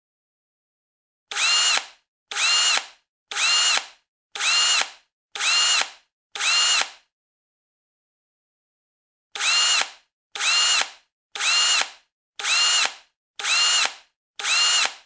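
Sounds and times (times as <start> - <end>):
power drill driving screws: 1.3 - 7.0, 9.4 - 15.0.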